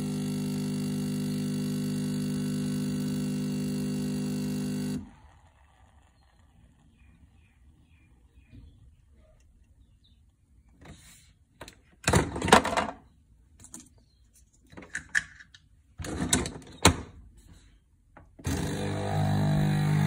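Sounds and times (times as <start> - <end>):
coffee machine hissing and sputtering: 0.0 - 7.0, 18.5 - 20.0.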